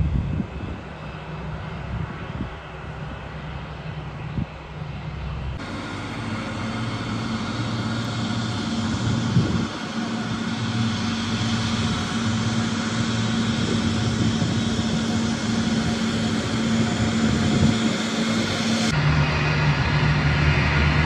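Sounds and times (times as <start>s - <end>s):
jet engines humming and whining: 0.0s - 21.0s.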